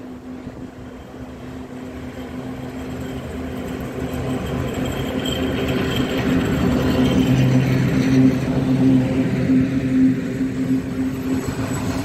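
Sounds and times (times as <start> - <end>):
electric locomotive humming: 0.0 - 12.0.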